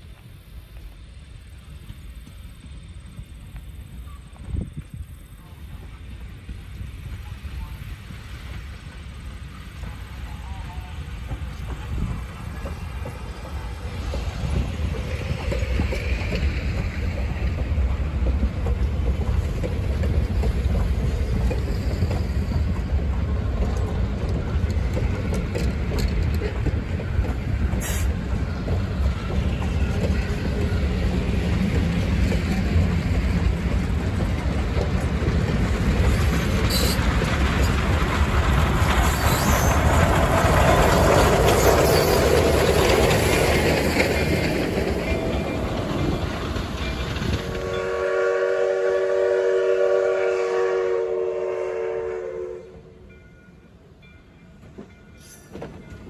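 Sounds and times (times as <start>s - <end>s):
train rumbling past: 0.0s - 56.0s
wheels clattering over rail joints: 11.0s - 47.9s
rail car horn chord: 47.6s - 53.0s.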